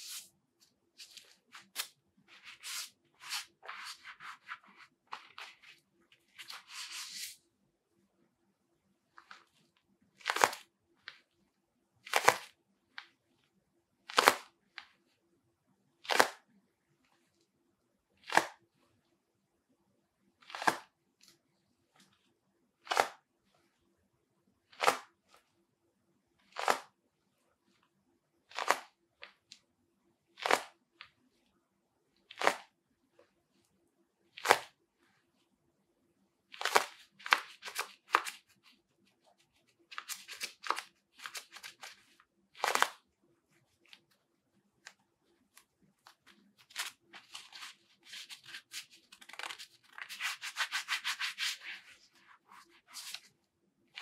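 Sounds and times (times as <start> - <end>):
glove being flexed: 24.8 - 25.1, 30.4 - 31.1, 34.4 - 34.8, 36.5 - 43.0.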